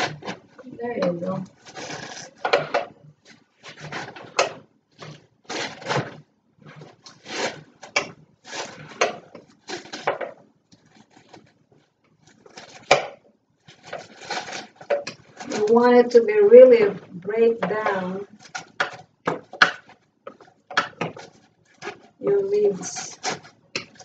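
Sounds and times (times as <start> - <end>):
utensil scraping leaves in blender jar: 13.7 - 24.0.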